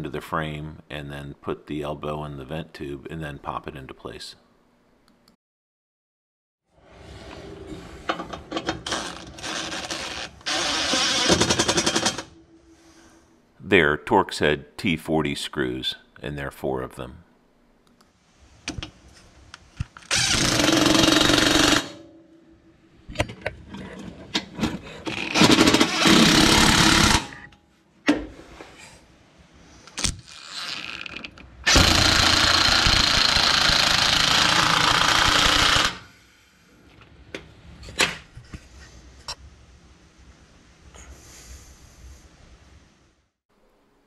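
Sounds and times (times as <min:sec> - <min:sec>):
cordless power driver running: 0:31.7 - 0:36.0.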